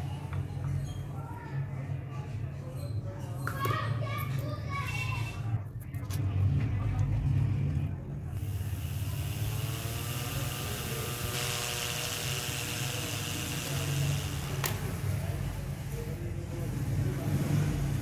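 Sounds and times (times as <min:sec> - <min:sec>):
hard drive motor whine: 0:08.4 - 0:15.0.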